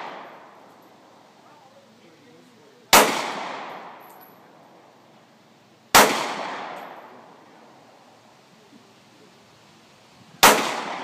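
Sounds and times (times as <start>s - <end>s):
pistol shot: 2.9s - 4.0s, 5.9s - 7.1s, 10.4s - 11.0s.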